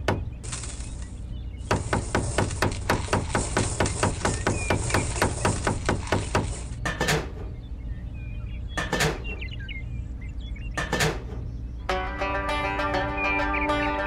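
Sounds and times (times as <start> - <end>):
rapid hammer-like tapping: 1.6 - 7.3.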